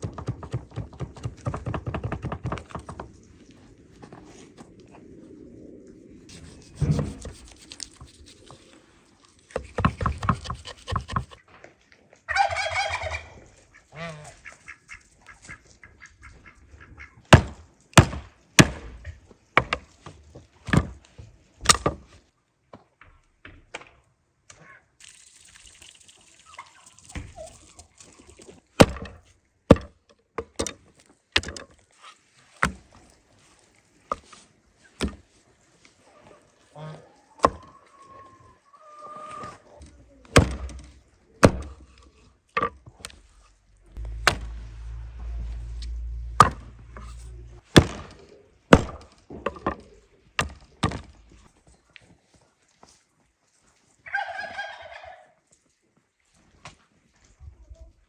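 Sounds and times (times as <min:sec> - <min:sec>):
sharp knocks and clatters: 0:00.0 - 0:03.2
poultry calling: 0:12.3 - 0:17.2, 0:36.1 - 0:39.8, 0:54.0 - 0:55.4.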